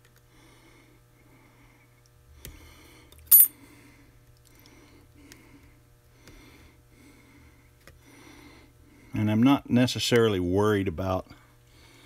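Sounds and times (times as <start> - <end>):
man breathing wheezily: 2.5 - 9.1
sharp metallic clink: 3.3 - 3.5.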